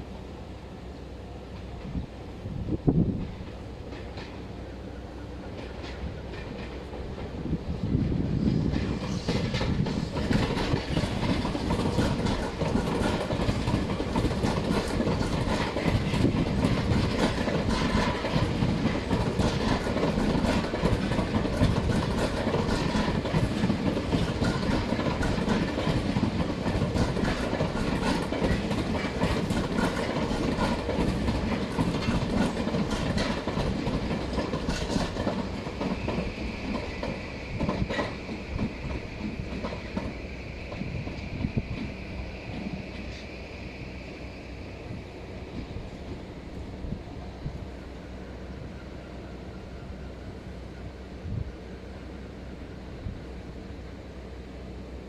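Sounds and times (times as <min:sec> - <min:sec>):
train rumble: 0:00.0 - 0:55.0
train wheels clacking over rail joints: 0:03.1 - 0:04.6, 0:05.2 - 0:43.3.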